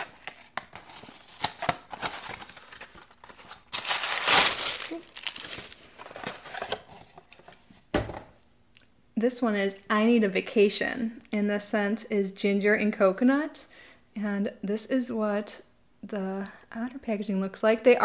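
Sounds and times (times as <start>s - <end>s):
paper and cardboard crinkling: 0.0s - 7.7s.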